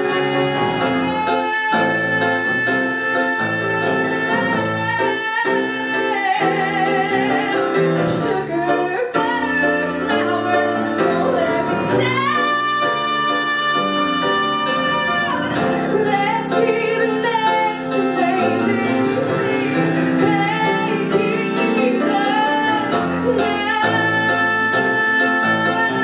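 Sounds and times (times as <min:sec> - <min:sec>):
grand piano accompaniment: 0:00.0 - 0:26.0
woman singing: 0:00.0 - 0:26.0.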